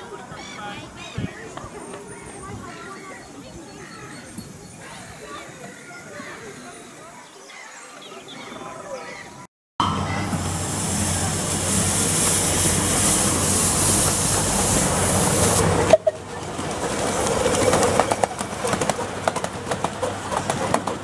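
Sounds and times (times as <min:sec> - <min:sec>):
steam locomotive hissing: 0:09.8 - 0:21.0
train wheels clicking over rail joints: 0:10.2 - 0:21.0.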